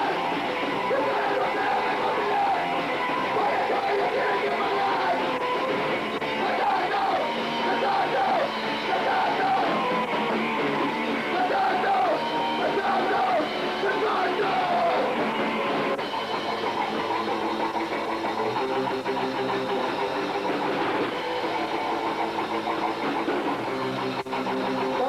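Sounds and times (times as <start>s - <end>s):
shouted vocals: 0.0s - 10.1s, 10.8s - 15.2s
punk band playing live: 0.0s - 25.0s.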